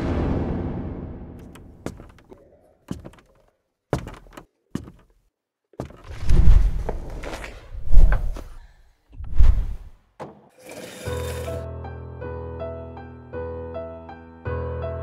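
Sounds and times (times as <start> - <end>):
deep booming hit: 0.0 - 1.9
scattered knocks: 1.4 - 2.3.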